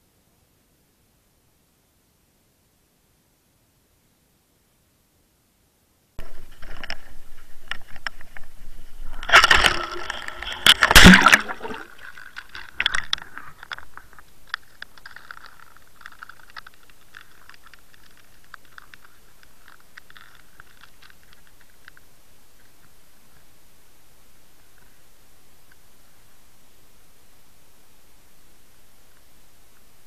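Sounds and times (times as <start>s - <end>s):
loud splash into water: 9.1s - 12.1s.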